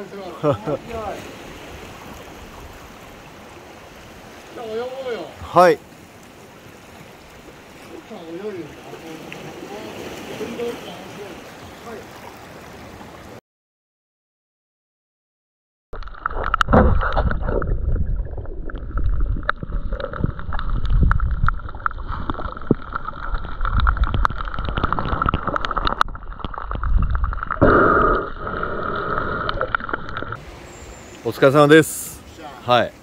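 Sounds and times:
sharp underwater clicks and knocks: 16.0s - 28.2s
underwater gurgling and sloshing: 16.0s - 31.2s.

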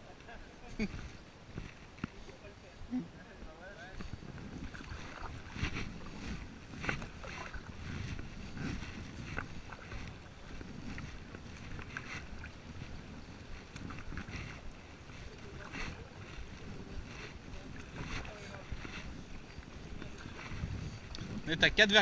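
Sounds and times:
low wind rumble on microphone: 0.0s - 22.0s
kayak paddle splashing: 4.2s - 21.3s.

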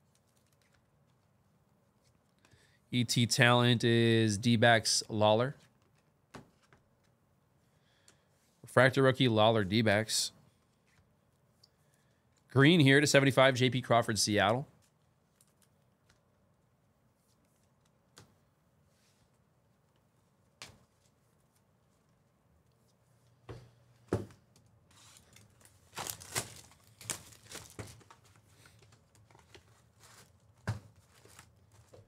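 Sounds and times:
packaging tearing and crinkling: 25.2s - 28.2s.

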